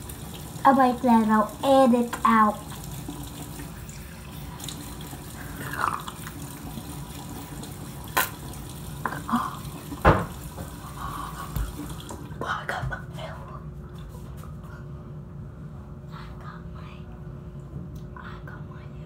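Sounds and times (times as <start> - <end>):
water running from sink tap: 0.0 - 12.4.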